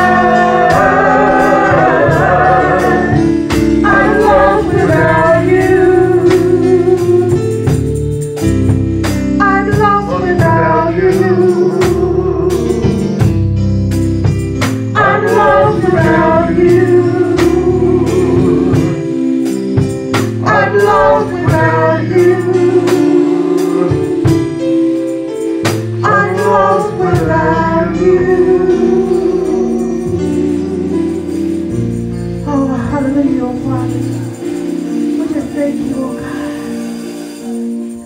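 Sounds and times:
women singing backing: 0.0s - 7.5s, 15.0s - 19.0s, 20.4s - 24.3s, 26.0s - 31.0s
instrumental accompaniment with beat: 0.0s - 38.0s
woman singing lead: 9.4s - 13.1s, 20.4s - 24.2s.

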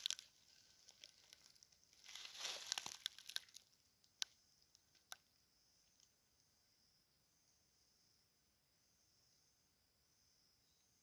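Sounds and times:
dry leaves rustling and crackling: 0.0s - 3.7s.

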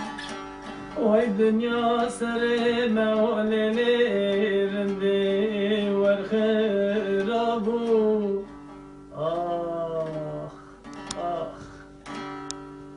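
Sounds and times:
plucked lute: 0.0s - 12.9s
man singing held note: 9.1s - 11.9s.

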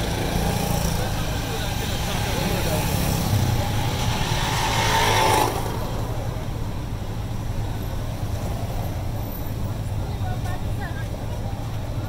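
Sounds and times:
motorcycle accelerating: 0.0s - 7.0s
road traffic: 0.0s - 12.0s.

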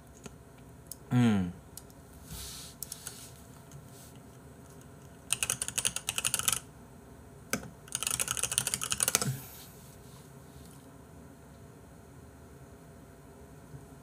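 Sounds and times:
typing on computer keyboard: 5.3s - 6.6s, 7.5s - 9.3s.

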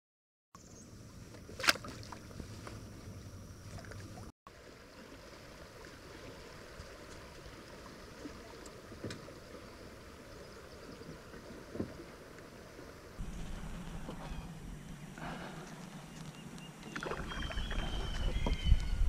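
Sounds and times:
river water lapping: 0.8s - 19.0s.

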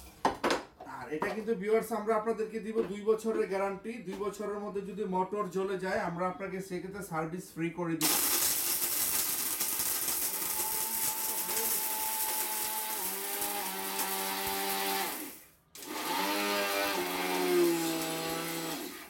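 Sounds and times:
blender grinding brick: 8.0s - 19.0s.

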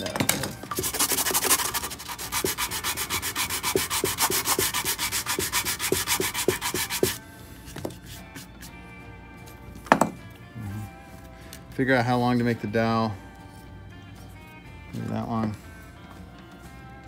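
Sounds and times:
sanding block rubbing on wood: 0.7s - 7.2s.

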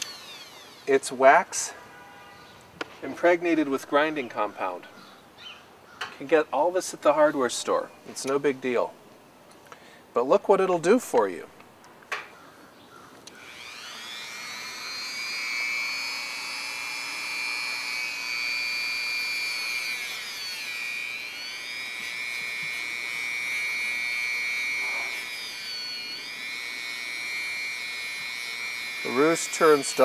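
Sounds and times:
rotary tool whining: 0.0s - 1.8s, 13.2s - 30.0s.

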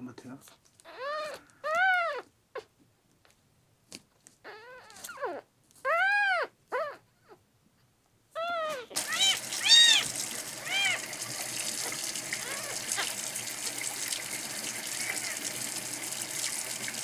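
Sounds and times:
kitten mewing: 8.4s - 13.2s.

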